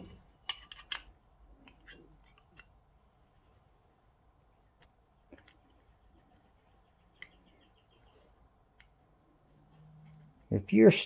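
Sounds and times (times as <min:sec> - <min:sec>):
small parts clicking and tapping: 0:00.4 - 0:02.7.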